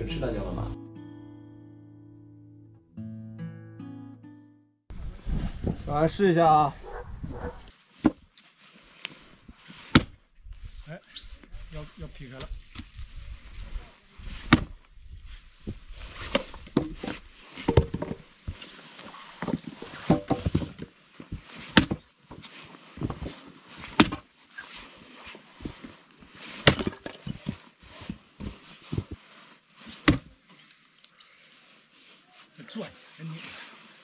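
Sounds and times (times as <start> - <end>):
axe chopping log: 9.9 - 10.2.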